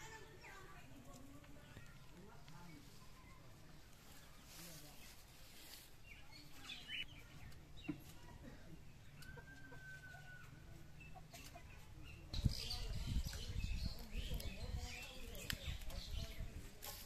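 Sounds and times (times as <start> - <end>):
chickens clucking: 6.5 - 17.0.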